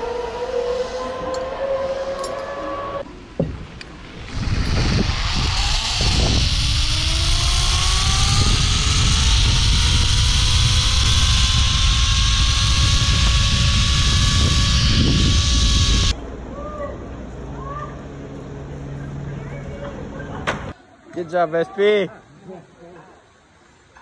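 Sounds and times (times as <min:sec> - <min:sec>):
zipline pulley whine: 0:00.0 - 0:16.2
wind rush on microphone: 0:04.0 - 0:16.2.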